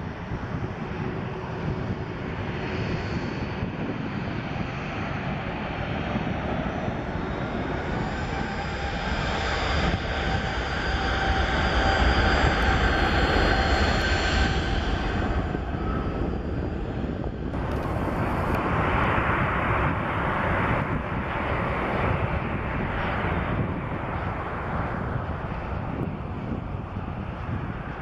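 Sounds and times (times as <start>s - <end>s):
jet engines rushing: 0.0s - 28.0s.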